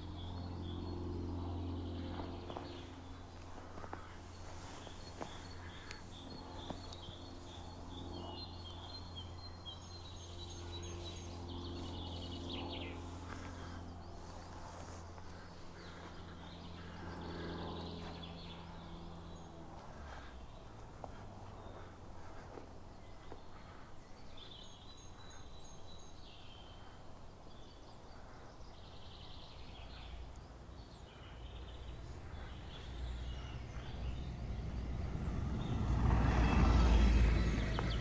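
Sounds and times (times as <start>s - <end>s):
small birds chirping: 0.0s - 38.0s
steady low hum: 0.0s - 38.0s.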